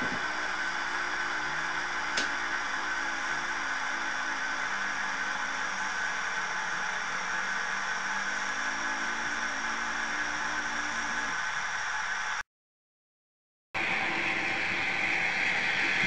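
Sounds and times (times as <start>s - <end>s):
small motor whirring: 0.0s - 11.9s.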